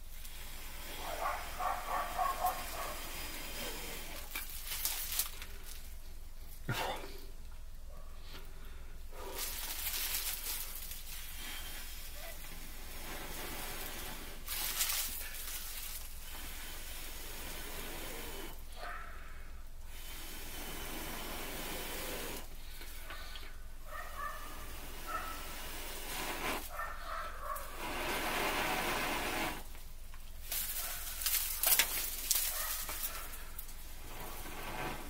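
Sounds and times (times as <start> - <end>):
person blowing on tinder: 0.0 - 4.5, 10.2 - 18.8, 19.9 - 23.7, 24.4 - 26.8, 27.6 - 29.8, 33.2 - 35.0.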